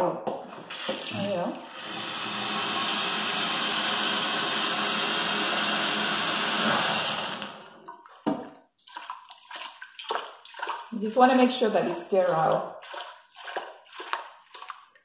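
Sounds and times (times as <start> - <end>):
tap water pouring into metal bowl: 0.7 - 15.0
water sloshing: 7.8 - 15.0.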